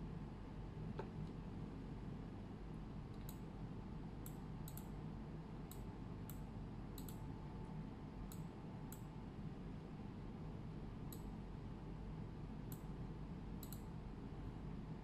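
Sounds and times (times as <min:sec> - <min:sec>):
steady low hum: 0:00.0 - 0:15.0
computer mouse clicking: 0:04.2 - 0:04.9, 0:07.0 - 0:07.2, 0:13.6 - 0:13.9.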